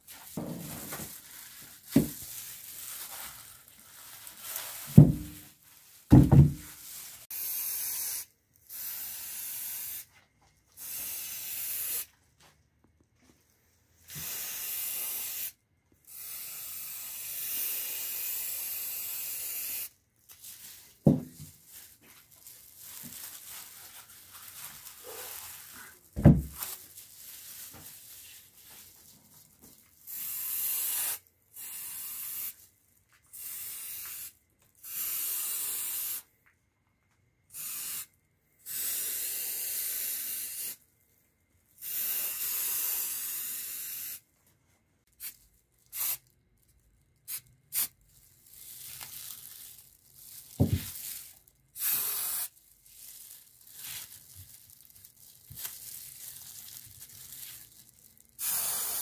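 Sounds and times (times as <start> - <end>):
spray paint can hissing: 7.2 - 10.1, 10.8 - 12.1, 14.1 - 19.9, 30.1 - 32.6, 33.3 - 36.3, 37.5 - 40.8, 41.8 - 44.2, 45.2 - 46.2, 47.3 - 48.0, 51.8 - 52.6, 58.4 - 59.0.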